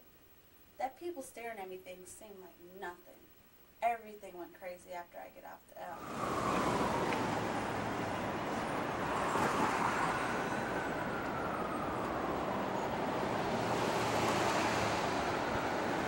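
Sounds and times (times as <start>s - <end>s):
cars driving past: 6.0s - 16.0s.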